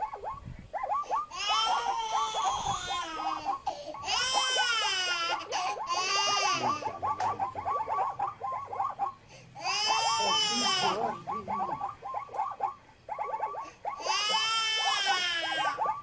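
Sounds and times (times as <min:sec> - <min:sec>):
baby crying: 0:01.3 - 0:07.0, 0:09.6 - 0:11.2, 0:14.0 - 0:16.0.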